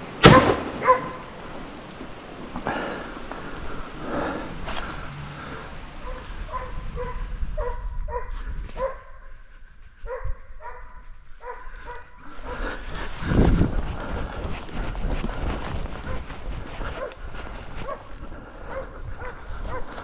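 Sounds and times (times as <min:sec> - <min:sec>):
dog barking: 0:00.8 - 0:01.2, 0:06.0 - 0:09.3, 0:10.0 - 0:12.6, 0:17.0 - 0:17.2, 0:17.8 - 0:18.1, 0:18.7 - 0:20.0.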